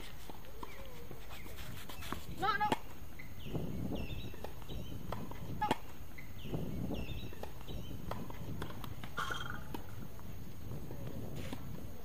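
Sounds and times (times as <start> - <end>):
low outdoor hum: 0.0 - 12.0
racket hitting tennis ball: 4.0 - 6.0, 7.2 - 10.0.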